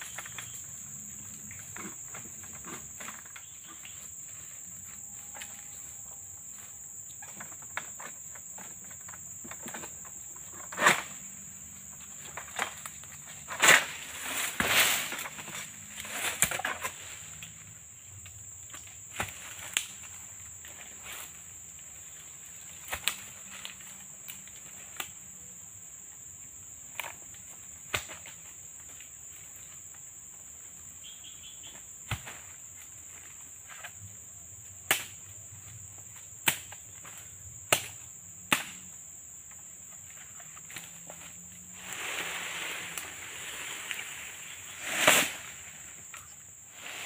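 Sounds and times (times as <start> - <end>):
high-pitched insect drone: 0.0 - 18.2.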